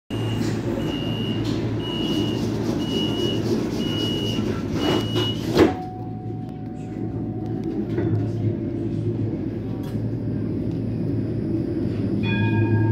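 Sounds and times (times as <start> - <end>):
high warning beeps: 0.1 - 5.5
tram low hum: 0.1 - 12.9.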